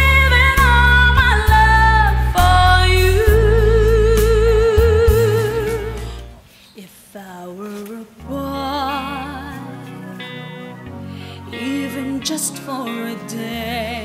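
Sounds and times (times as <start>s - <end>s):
woman singing with vibrato: 0.0s - 6.2s, 6.8s - 10.6s, 11.4s - 14.0s
bass-heavy pop backing: 0.0s - 6.4s.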